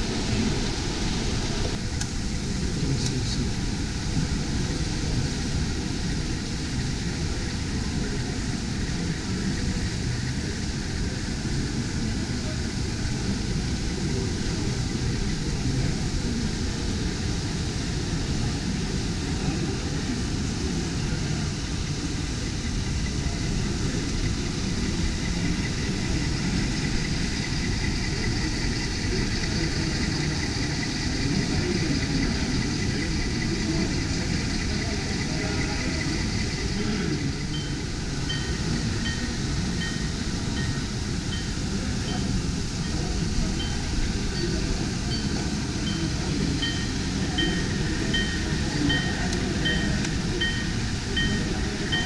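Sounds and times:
crowd chatter: 0.0s - 52.0s
faint high whine: 0.0s - 52.0s
model trains running: 0.0s - 52.0s.

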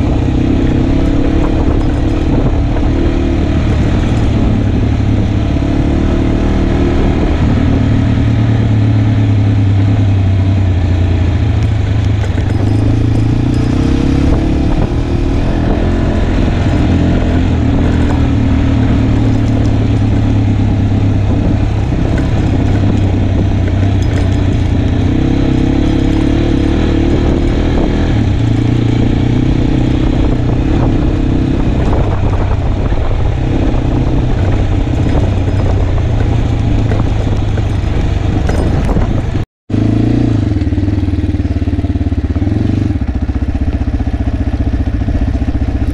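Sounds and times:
motorcycle engine revving: 0.0s - 45.9s
wind: 0.0s - 45.9s
tyres on gravel: 12.0s - 26.8s.

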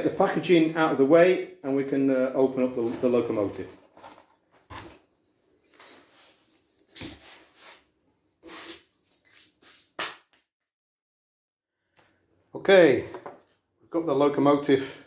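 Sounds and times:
packing peanuts and cardboard rustling: 2.6s - 7.8s.

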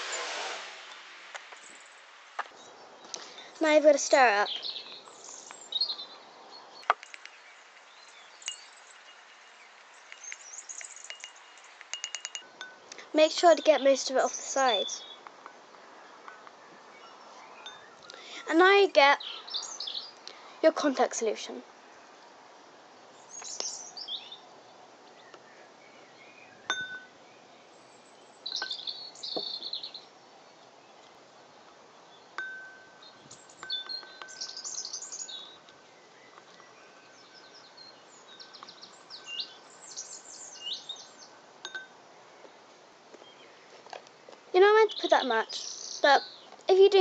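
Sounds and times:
birds chirping: 0.0s - 47.0s
spoon clinking on ceramic bowl: 11.1s - 12.8s, 41.7s - 41.9s
spoon stirring in a bowl: 11.1s - 12.8s.

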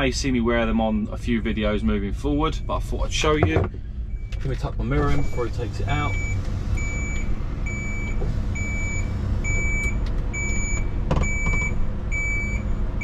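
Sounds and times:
lorry engine running: 0.0s - 13.0s
reversing alarm beeping: 4.1s - 13.0s.

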